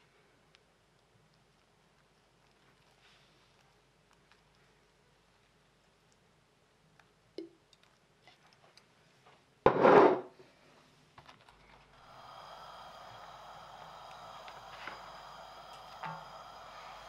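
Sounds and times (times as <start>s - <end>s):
steady hiss: 11.8s - 17.0s.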